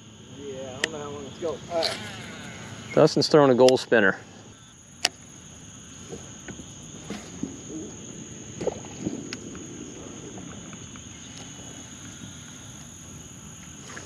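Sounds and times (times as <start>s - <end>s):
high insect hum: 0.0s - 14.0s
wind noise on microphone: 6.0s - 13.0s.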